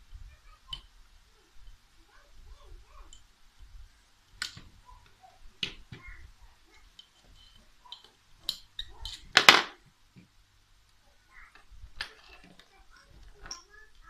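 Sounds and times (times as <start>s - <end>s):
metal tools clicking on metal: 13.4s - 14.0s.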